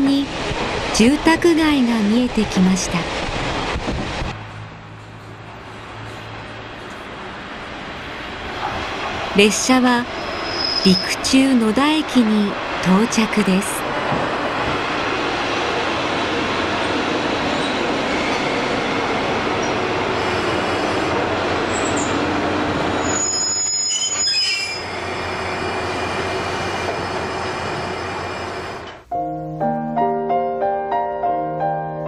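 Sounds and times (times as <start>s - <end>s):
diesel railcar running: 0.0s - 29.1s
high brake squeal: 10.2s - 11.2s, 23.0s - 25.1s
gentle piano music: 29.1s - 32.0s.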